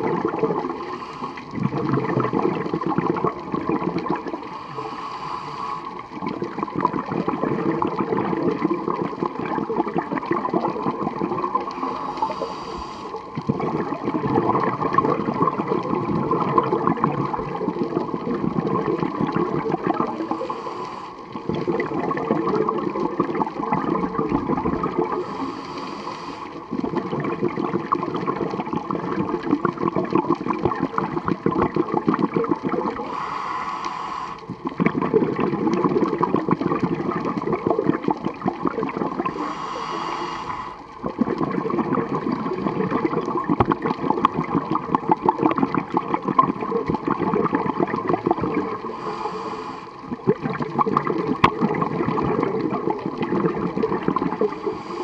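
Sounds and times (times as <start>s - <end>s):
gurgling exhaled bubbles: 0.0s - 55.0s
regulator inhale hiss: 0.7s - 1.6s, 4.3s - 6.1s, 11.6s - 13.4s, 20.0s - 21.6s, 24.9s - 26.8s, 33.0s - 34.7s, 39.2s - 41.0s, 48.7s - 50.2s, 54.3s - 55.0s.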